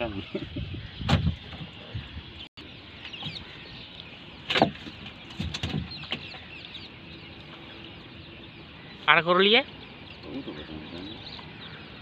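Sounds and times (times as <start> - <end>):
knocks and clatters in canoe: 4.5 - 6.4.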